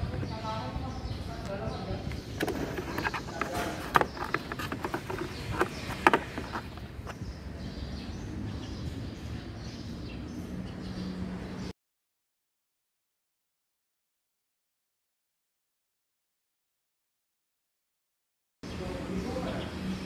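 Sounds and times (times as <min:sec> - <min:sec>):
plastic cover clicks and knocks: 0:02.4 - 0:06.8.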